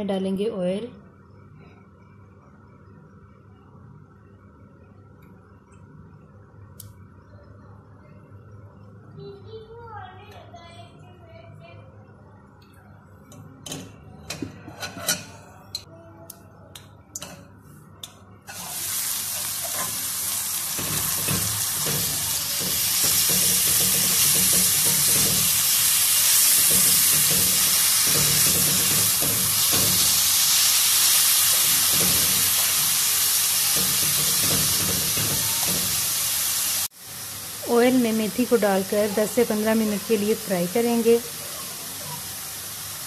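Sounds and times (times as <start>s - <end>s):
spoon knocking and scraping pan: 13.7s - 15.4s, 20.7s - 25.7s, 26.5s - 30.3s, 31.5s - 32.8s, 33.8s - 36.1s
leaves sizzling in hot oil: 18.5s - 43.0s.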